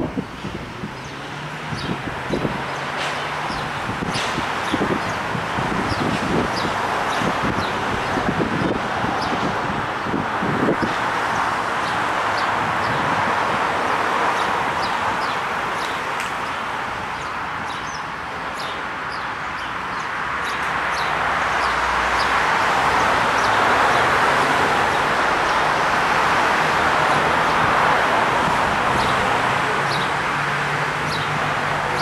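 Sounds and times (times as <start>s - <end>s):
steady rushing noise: 0.0s - 32.0s
small birds chirping: 1.0s - 7.8s, 14.4s - 22.4s.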